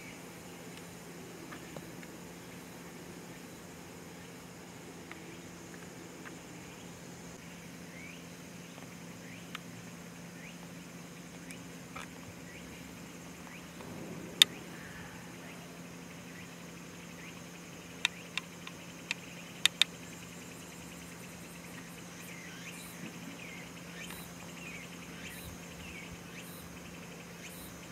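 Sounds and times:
high insect drone: 0.0s - 27.9s
steady low hum: 0.0s - 27.9s
faint bird chirps: 1.4s - 11.8s, 12.4s - 27.9s
sharp clicks: 18.0s - 20.0s.

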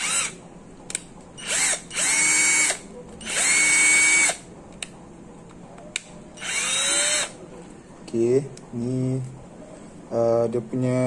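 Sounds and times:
cordless drill motor whine: 0.0s - 0.3s, 1.4s - 4.4s, 6.4s - 7.3s.

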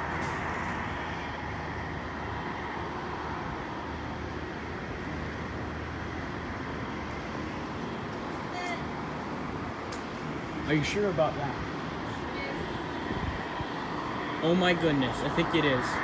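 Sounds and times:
distant traffic rumble: 0.0s - 16.0s.

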